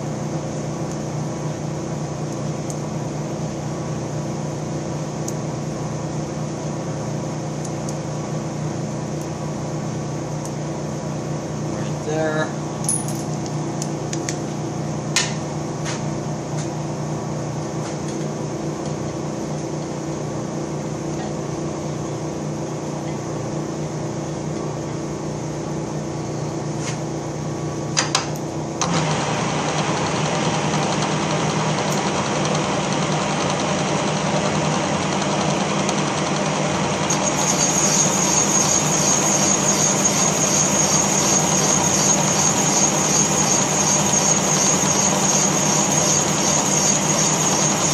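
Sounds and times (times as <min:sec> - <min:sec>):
boring machine humming: 0:00.0 - 0:47.9
high-pitched whine: 0:37.1 - 0:47.9.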